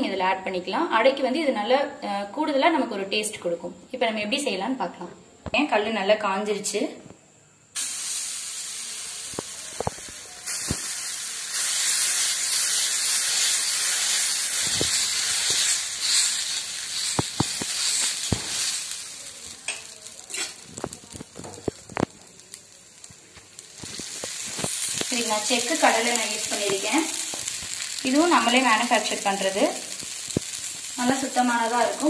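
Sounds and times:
batter sizzling on griddle: 0:07.8 - 0:32.0.

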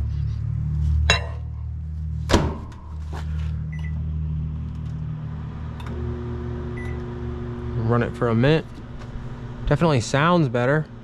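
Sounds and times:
microwave low hum: 0:00.4 - 0:11.0
keypad beep: 0:03.7 - 0:04.0, 0:06.8 - 0:07.0.

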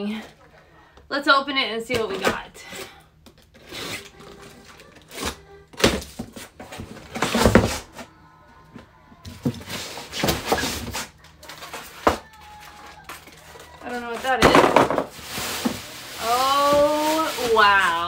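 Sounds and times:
foam packing insert scraping: 0:15.1 - 0:18.0.

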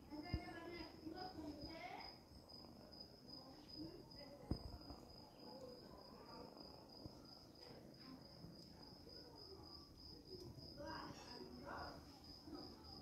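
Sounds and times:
high-pitched insect trill: 0:00.1 - 0:07.4.

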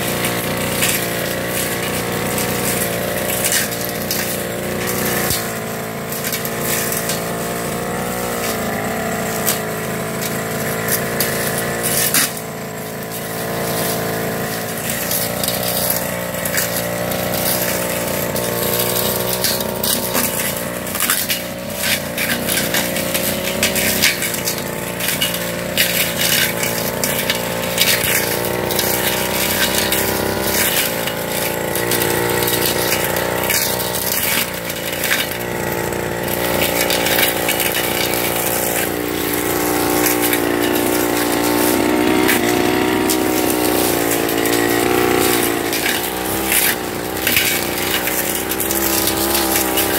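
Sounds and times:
brush cutter engine running: 0:00.0 - 0:49.9
sharp ticks and clatter: 0:00.0 - 0:49.9.

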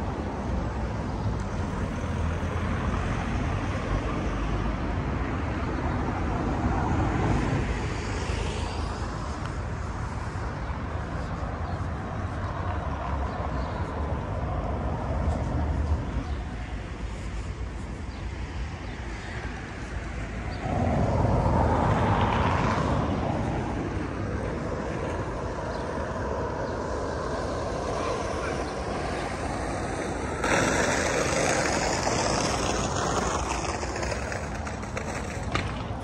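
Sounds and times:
street traffic passing: 0:00.0 - 0:36.0
vehicle passing by: 0:19.1 - 0:36.0.

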